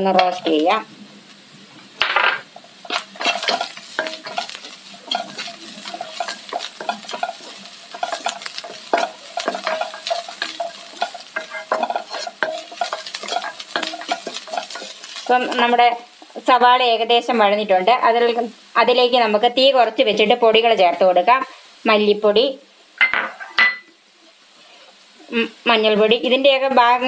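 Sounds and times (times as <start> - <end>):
oil sizzling: 0.0 - 27.0
spatula scraping a pan: 2.8 - 15.8.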